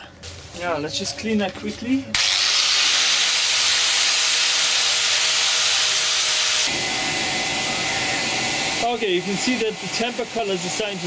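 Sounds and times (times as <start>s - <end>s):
angle grinder grinding metal: 2.2s - 6.7s.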